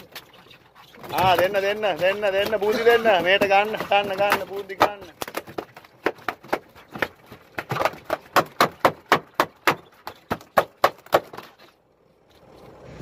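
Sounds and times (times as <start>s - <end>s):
fish tail beating on deck: 1.0s - 11.6s.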